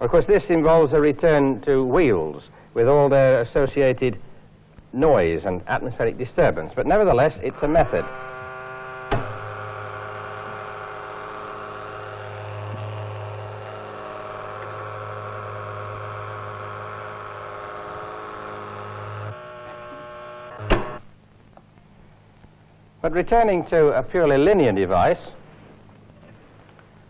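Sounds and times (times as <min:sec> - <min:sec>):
deep electrical hum: 0:00.0 - 0:27.0
multi-pitched motor whine: 0:00.0 - 0:27.0.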